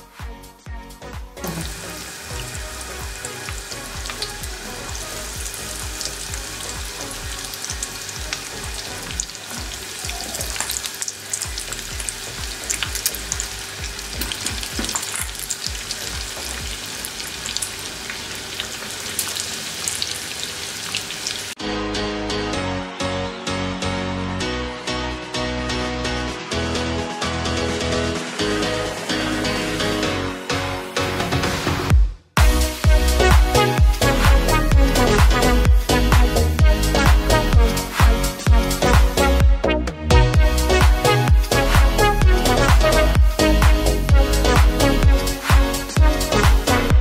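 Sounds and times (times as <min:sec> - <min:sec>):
music: 0:00.0 - 0:19.4, 0:21.6 - 0:47.0
chicken wings deep-frying in oil: 0:01.5 - 0:21.6.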